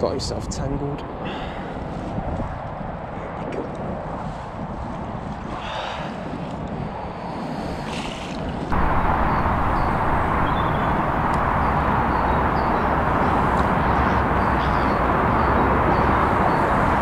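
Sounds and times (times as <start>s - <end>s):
rushing wind: 0.0s - 17.0s.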